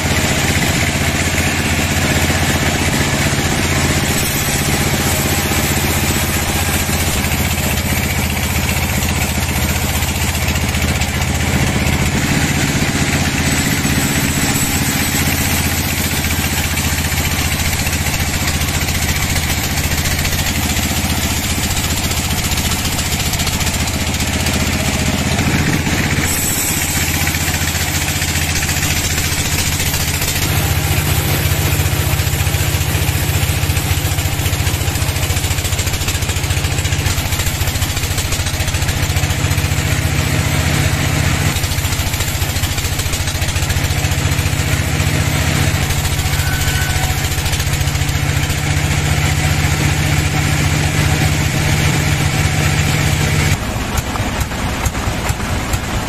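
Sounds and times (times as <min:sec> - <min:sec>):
machine hum: 0:00.0 - 0:40.6
band saw cutting log: 0:00.0 - 0:56.0.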